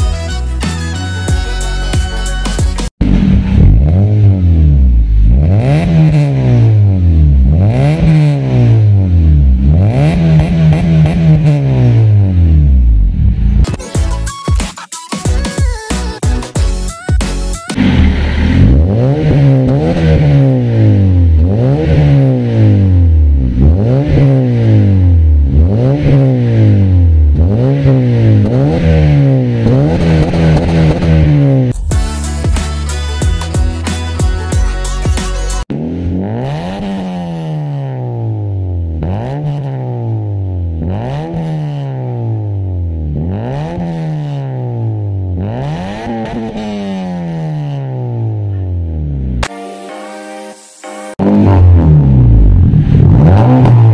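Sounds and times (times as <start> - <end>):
car exhaust revving: 3.0 - 13.6, 17.8 - 32.0, 35.7 - 49.4, 51.2 - 53.9.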